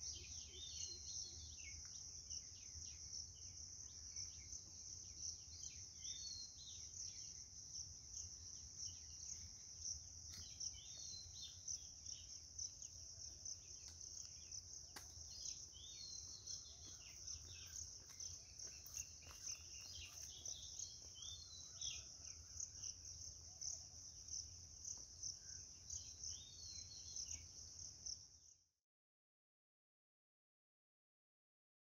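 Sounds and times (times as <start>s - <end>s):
insects trilling: 8.1s - 28.2s.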